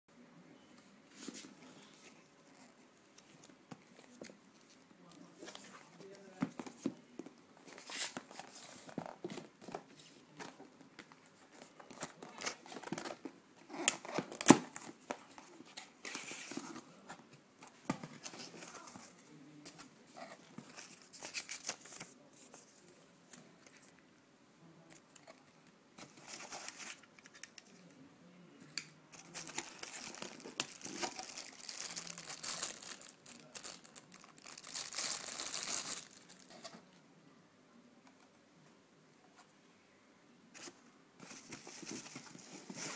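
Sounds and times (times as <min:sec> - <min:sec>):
plastic bags crinkling: 0:29.2 - 0:36.6.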